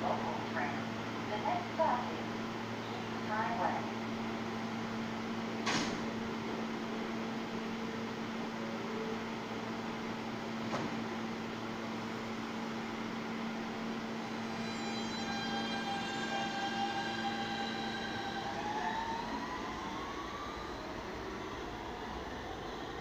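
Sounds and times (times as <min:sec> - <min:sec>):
subway train equipment humming: 0:00.0 - 0:23.0
traction motor whine: 0:14.2 - 0:22.6.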